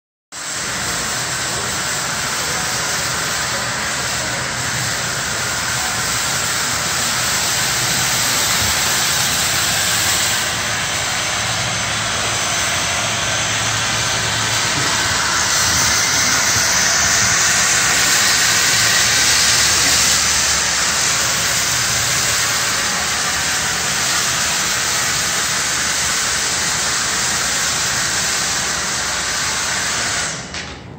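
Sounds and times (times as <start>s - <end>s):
vacuum cleaner motor whine: 0.4s - 30.7s.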